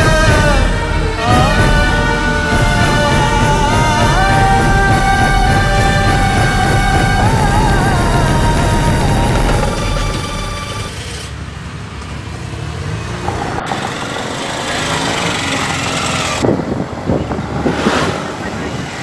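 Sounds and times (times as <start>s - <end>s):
background music: 0.0s - 10.9s
auto rickshaw engine running: 0.0s - 17.6s.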